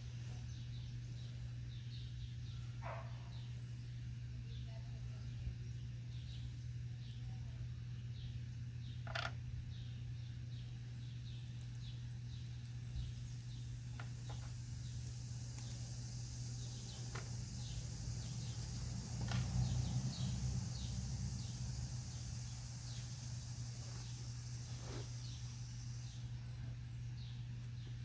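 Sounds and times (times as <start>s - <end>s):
low hum: 0.0s - 28.0s
insect chirps: 0.2s - 28.0s
insect trill: 8.8s - 27.5s.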